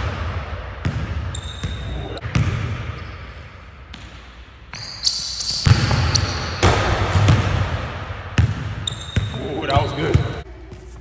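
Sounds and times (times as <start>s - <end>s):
basketball bouncing on wooden floor: 5.6s - 7.7s, 8.4s - 10.3s.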